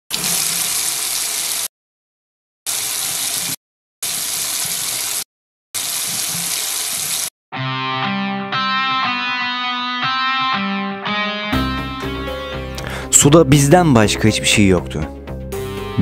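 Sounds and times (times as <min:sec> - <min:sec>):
tap water running into sink: 0:00.1 - 0:01.7, 0:02.7 - 0:05.2, 0:05.8 - 0:07.3.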